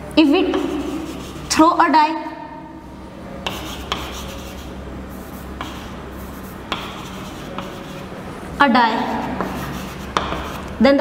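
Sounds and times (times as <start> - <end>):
chalk tapping on board: 0.5 - 1.4, 3.4 - 8.0, 9.0 - 10.7
chalk scratching on blackboard: 0.5 - 1.6, 3.4 - 8.1, 8.9 - 10.7.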